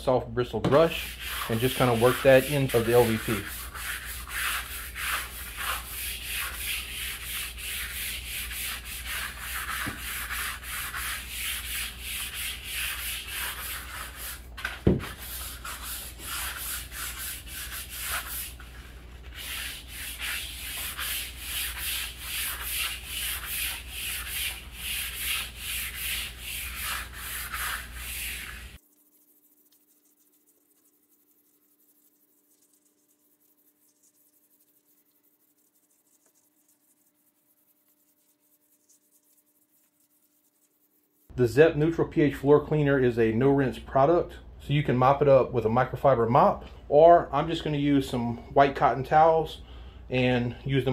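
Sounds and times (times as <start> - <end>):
brush scrubbing wet floor: 0.7 - 41.4.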